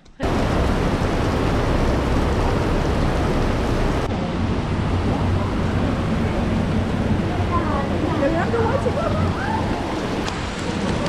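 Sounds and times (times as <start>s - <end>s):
heavy rain on pavement: 0.2s - 4.1s, 7.6s - 11.0s.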